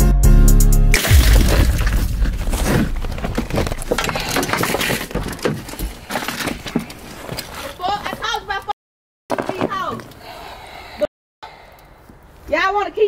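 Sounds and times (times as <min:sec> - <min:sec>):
car window smashing: 0:01.0 - 0:05.8.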